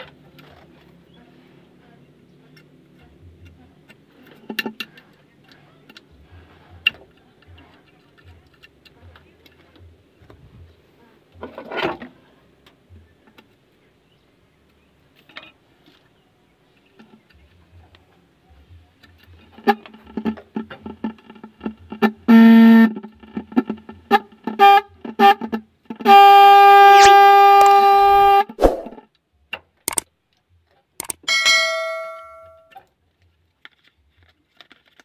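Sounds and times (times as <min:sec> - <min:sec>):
car horn buzzing and honking: 0:22.3 - 0:23.0, 0:24.1 - 0:28.6.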